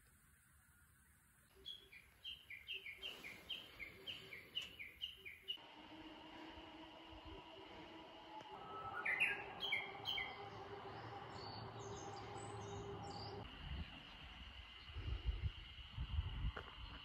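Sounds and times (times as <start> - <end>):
small birds chirping: 0.0 - 5.6, 8.9 - 15.2
low rumble: 5.6 - 17.0.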